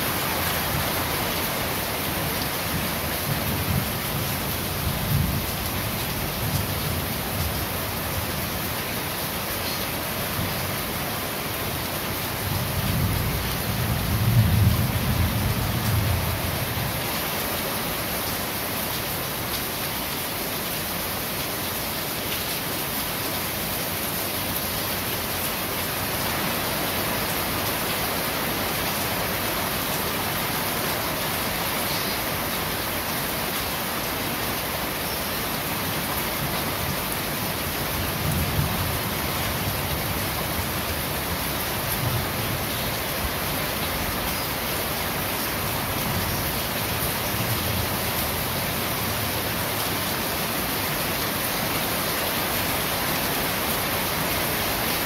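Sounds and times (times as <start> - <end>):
rain on corrugated roof: 0.0 - 55.0
low rumble of thunder: 12.7 - 17.0.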